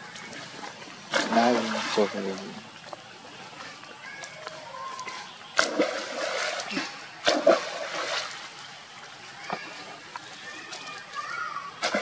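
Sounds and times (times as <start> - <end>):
water splashing: 0.0 - 12.0
loud splashes: 1.1 - 2.3, 5.0 - 8.6, 11.7 - 12.0.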